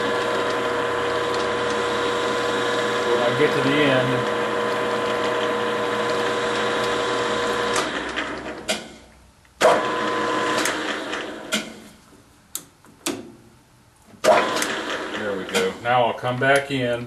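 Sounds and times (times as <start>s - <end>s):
metal lathe running: 0.0s - 8.6s, 9.6s - 11.5s, 14.2s - 15.8s
lathe switch click: 12.5s - 13.3s.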